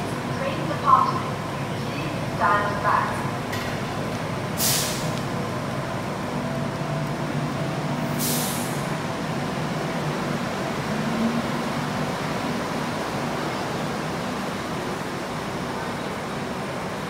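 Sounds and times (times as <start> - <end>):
air release hisses: 4.6 - 5.2, 8.1 - 8.9.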